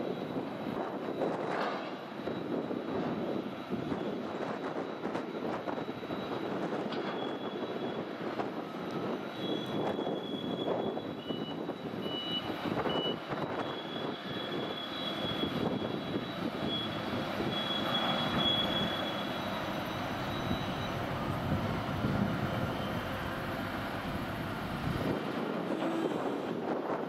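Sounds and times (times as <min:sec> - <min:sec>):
distant crane machinery drone: 0:00.0 - 0:27.0.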